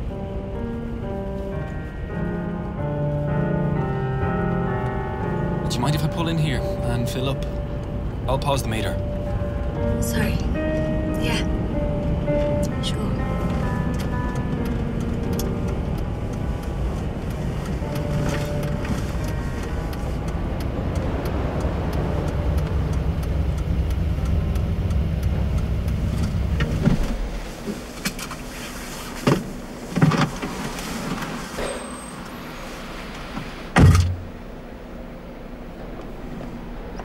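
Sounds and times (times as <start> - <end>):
car engine rumbling: 0.0 - 37.0
loud thud: 33.8 - 34.3.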